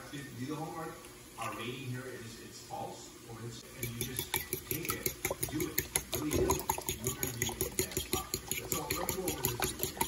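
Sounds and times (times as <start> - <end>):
beaten egg sloshing: 3.6 - 10.0
fork whisking eggs in bowl: 3.6 - 10.0.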